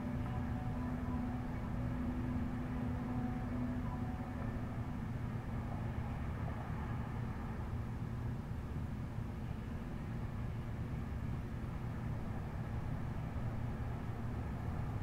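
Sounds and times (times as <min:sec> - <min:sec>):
low hum: 0:00.0 - 0:09.7
low rumble of city traffic: 0:00.0 - 0:15.0.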